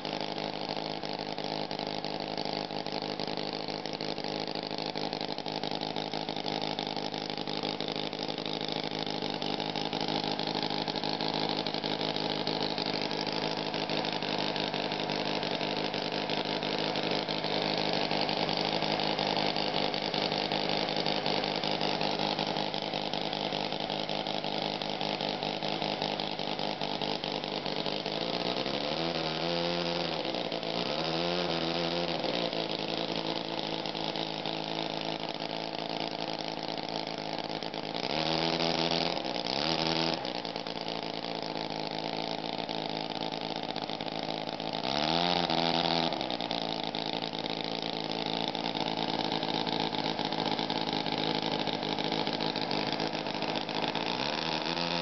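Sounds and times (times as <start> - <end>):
model engine running: 0.0 - 55.0.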